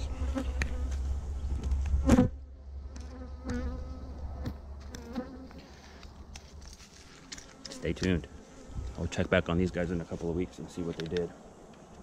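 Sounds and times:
bee flying past close: 0.0 - 1.0, 1.9 - 5.8
hum of many bees: 0.0 - 12.0.

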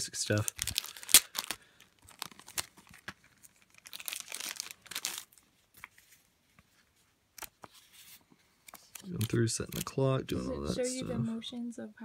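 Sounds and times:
plastic bag crinkling: 0.3 - 5.5.

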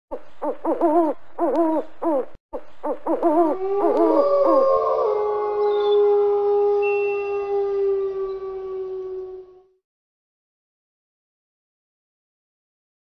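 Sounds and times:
wolves howling together: 3.2 - 9.8.

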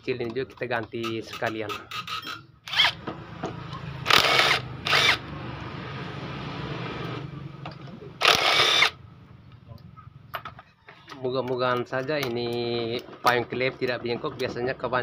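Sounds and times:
impact wrench hammering bursts: 1.0 - 5.3, 8.2 - 9.0
impact wrench motor whirring: 1.3 - 5.4, 8.2 - 9.0.

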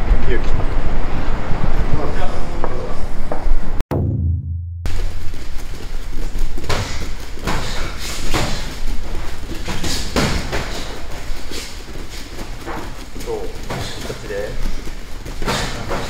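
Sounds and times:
sharp thuds: 3.9 - 5.2
feet shuffling on gym floor: 4.9 - 16.0.

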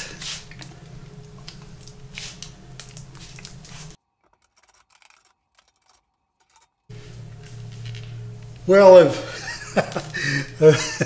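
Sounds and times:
scratchy handling noises: 0.0 - 8.7
faint low hum: 6.9 - 11.0.

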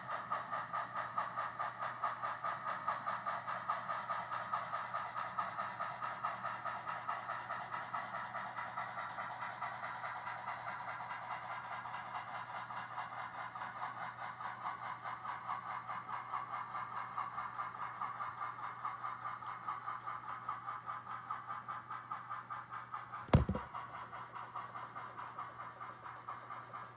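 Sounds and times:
model train whirring on track: 0.0 - 26.9
phone crashing into scenery: 23.3 - 23.7.

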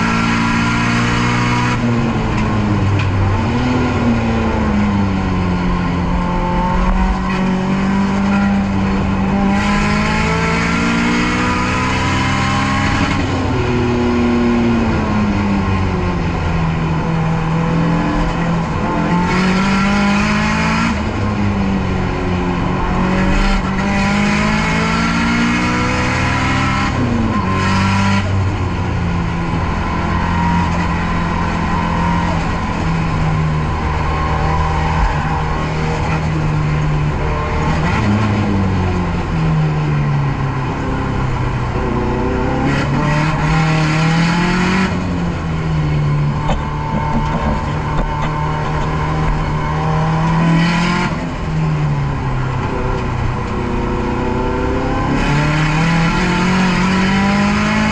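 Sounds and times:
race car engine revving: 0.0 - 57.9.

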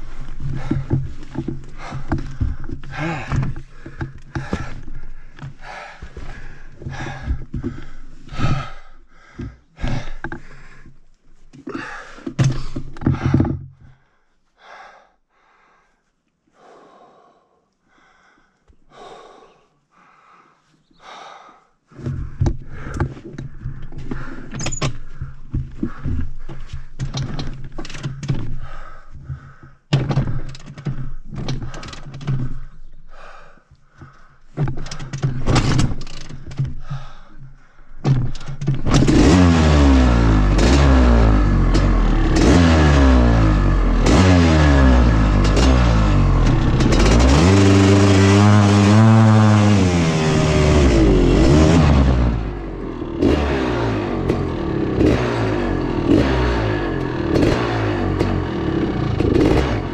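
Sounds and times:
heavy breathing: 0.0 - 38.8
motorcycle engine revving: 38.3 - 59.9.

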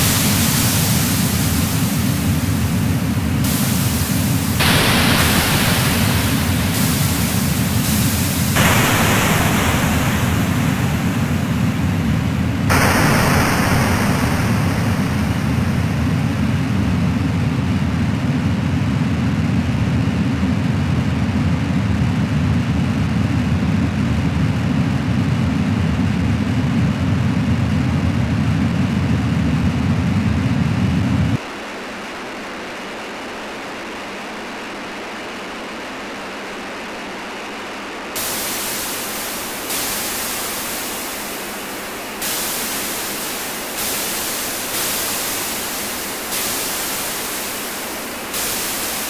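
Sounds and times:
electronic hiss layers: 0.0 - 17.1, 38.2 - 49.0
low noise rumble: 0.0 - 49.0.

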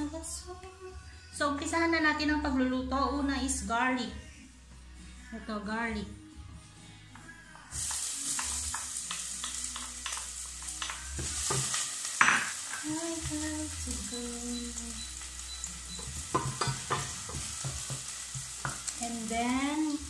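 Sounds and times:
onion sizzling in hot oil: 7.7 - 20.0
wooden spoon knocking pot: 16.0 - 18.9.

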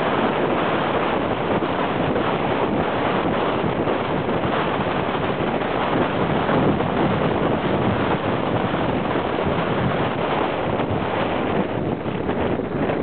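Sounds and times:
wind rushing over microphone: 0.0 - 13.0.

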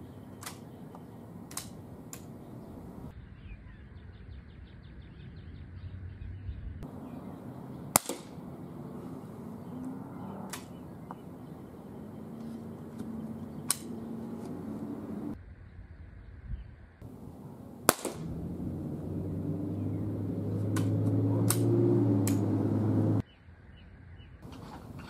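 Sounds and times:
rifle shot: 7.9 - 8.5, 17.8 - 18.4
faint clicks: 12.4 - 14.6.

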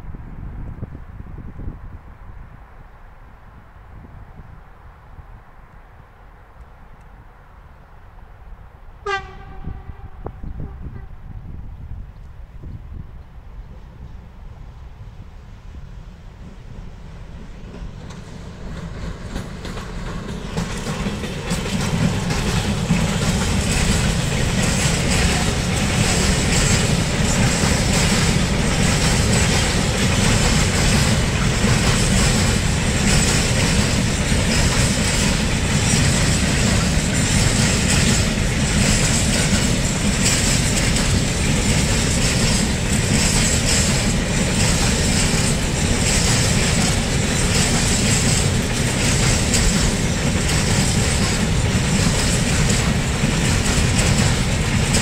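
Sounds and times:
freight train rumbling past: 0.0 - 55.0
wheels clacking over rail joints: 17.4 - 55.0.

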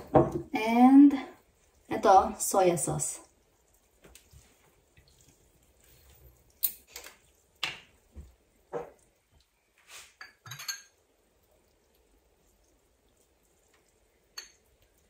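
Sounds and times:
glass clinks and knocks: 10.2 - 11.0.

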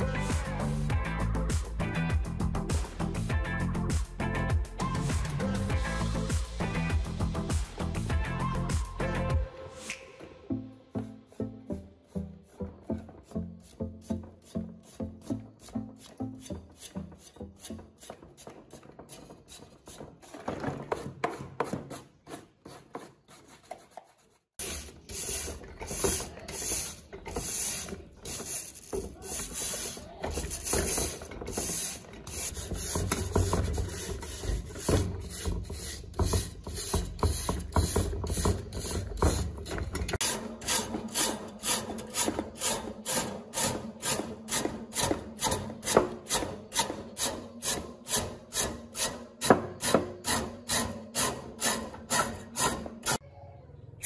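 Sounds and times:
brush scrubbing metal fan: 22.1 - 53.2.

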